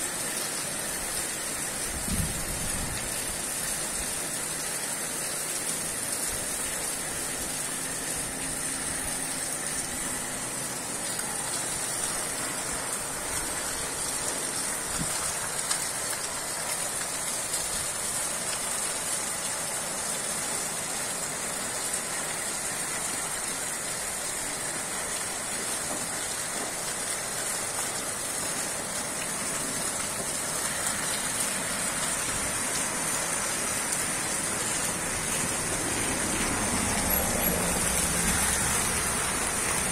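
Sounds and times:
heavy rain on roofs and street: 0.0 - 39.9.

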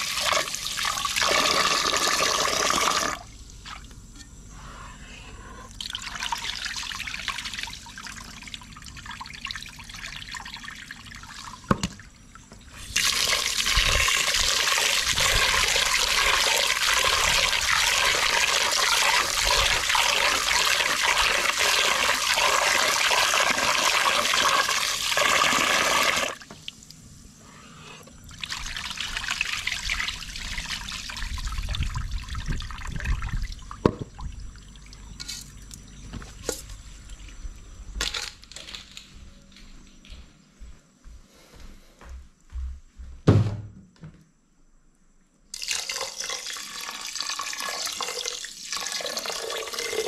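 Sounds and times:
water splashing into a pot: 45.5 - 50.0.

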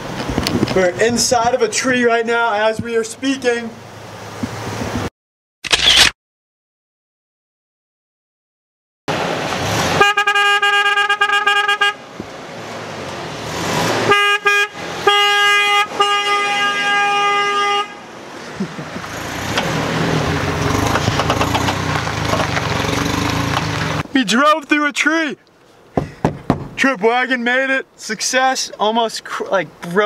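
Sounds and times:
truck engine pulling away: 9.1 - 10.0, 12.4 - 14.1, 18.1 - 24.0
truck horn honking: 9.8 - 12.1, 13.9 - 18.2
tyre noise: 18.5 - 25.3.

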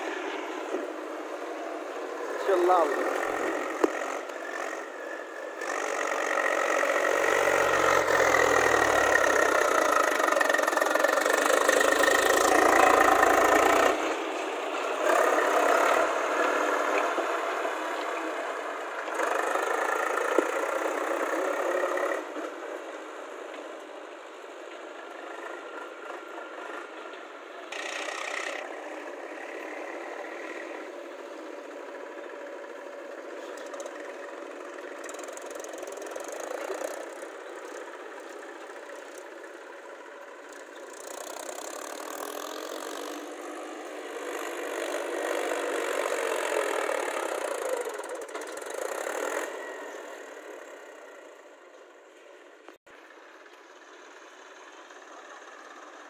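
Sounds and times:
diesel tractor engines: 0.0 - 56.0.

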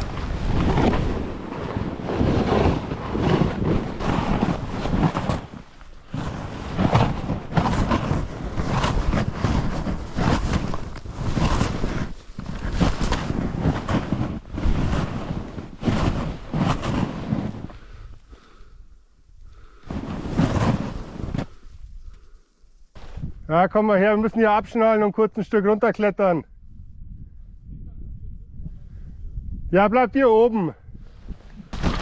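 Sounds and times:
skis sliding on snow: 0.0 - 18.6, 19.6 - 23.4
wind buffeting microphone: 0.0 - 18.6, 26.5 - 29.8.

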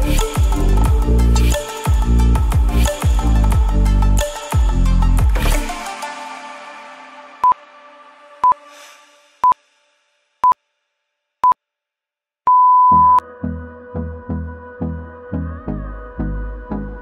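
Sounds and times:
electronic music with steady beat: 0.0 - 6.1
interval timer beeps: 12.5 - 13.2.

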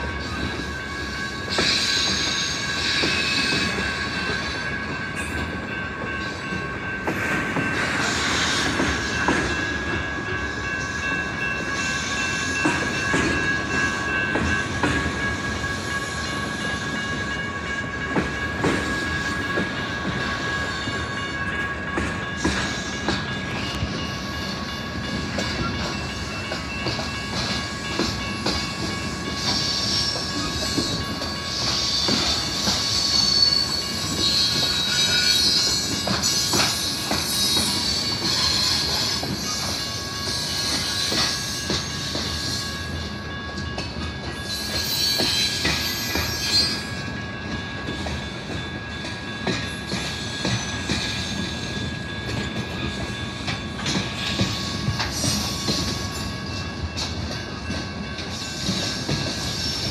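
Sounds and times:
freight train cars rumbling: 0.0 - 59.9
high-pitched wheel squeal: 31.6 - 42.9, 44.4 - 47.0.

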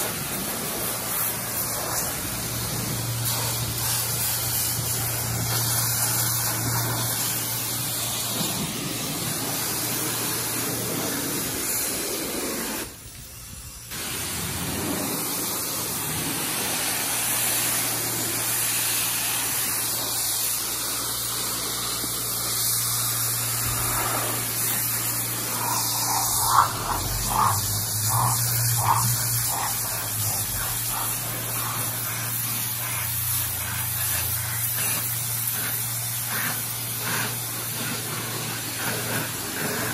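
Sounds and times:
pressure washer spray hissing: 0.0 - 39.9
sharp spray pulses: 0.0 - 39.9
low hum: 23.4 - 32.2.

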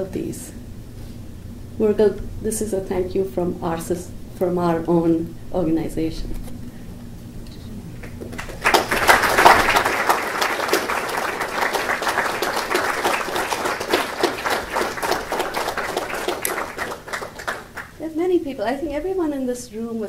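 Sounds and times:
audience clapping: 8.0 - 18.0.

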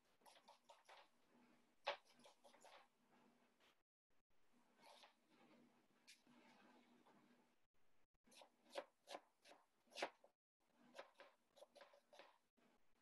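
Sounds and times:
knife chopping on wooden board: 8.3 - 10.2.

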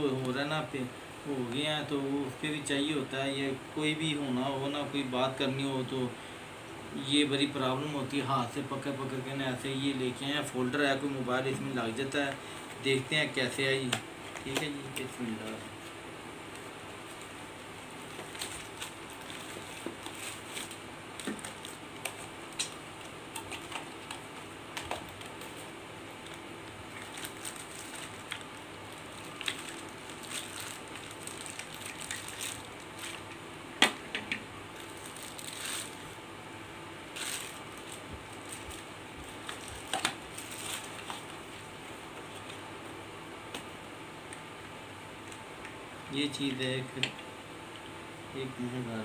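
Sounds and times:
faint steady hum: 0.0 - 49.0
cardboard and plastic bag crinkling: 17.0 - 33.4, 34.8 - 36.2, 37.1 - 41.6.

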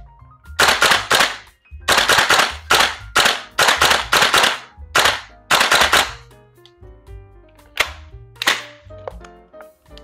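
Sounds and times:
music: 0.0 - 10.0
airsoft rifle firing bursts: 0.6 - 6.2.

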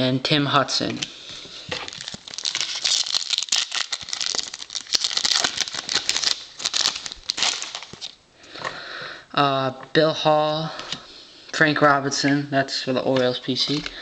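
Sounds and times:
foil wrapper crinkling and tearing: 1.7 - 8.2.

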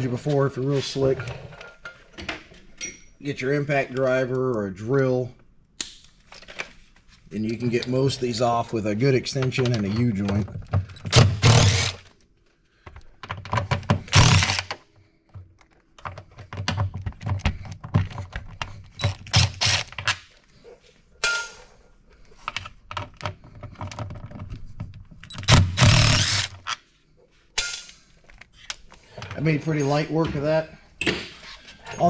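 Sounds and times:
impact driver bursts: 11.0 - 12.1, 14.0 - 14.8, 19.0 - 20.1, 25.3 - 26.7.

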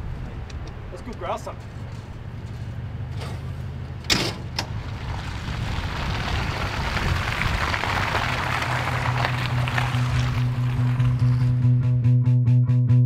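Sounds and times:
pickup truck driving past: 1.7 - 11.7.

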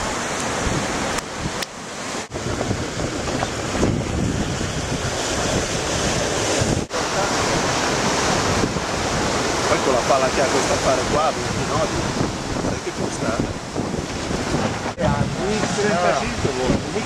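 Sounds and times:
water rushing along hull: 0.0 - 17.0
wind buffeting microphone: 0.0 - 17.0.

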